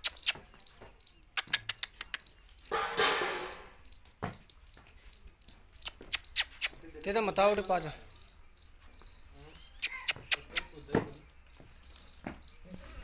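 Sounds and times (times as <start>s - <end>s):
sharp clicks: 1.3s - 2.7s.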